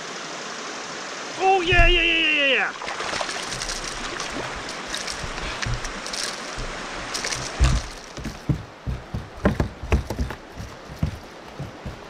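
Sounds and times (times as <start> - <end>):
rushing river water: 0.0 - 12.0
water sloshing and splashing: 1.6 - 12.0
dull knocks on kayak hull: 1.7 - 2.1, 6.6 - 12.0.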